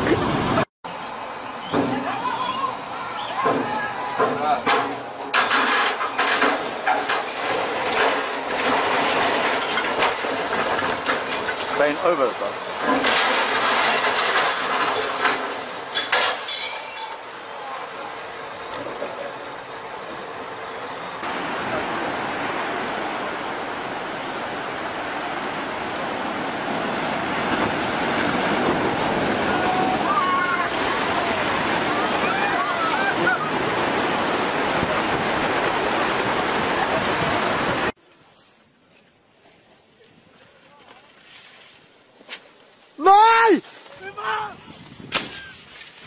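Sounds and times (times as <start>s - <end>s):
crane collapsing clatter: 1.6s - 38.0s
sharp metallic clanks and knocks: 3.4s - 17.3s
ocean surf breaking over rocks: 21.2s - 38.0s.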